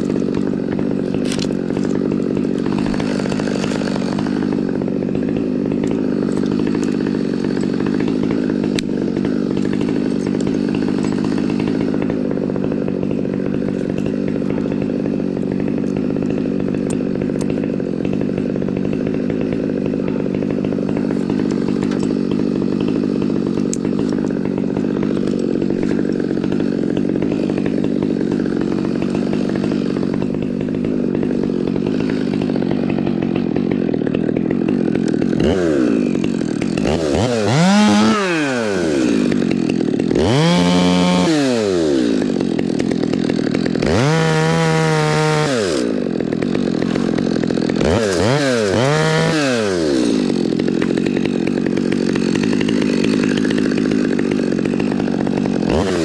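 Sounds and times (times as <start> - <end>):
small engine running steadily: 0.0 - 56.0.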